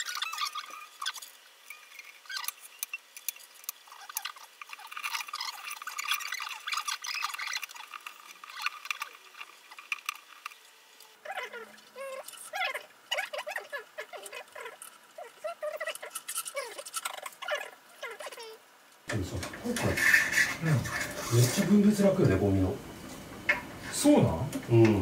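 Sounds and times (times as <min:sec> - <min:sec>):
sped up squeaky voices: 0:00.0 - 0:03.0, 0:03.8 - 0:10.2, 0:11.2 - 0:18.6
rapid small clicks: 0:00.0 - 0:19.0.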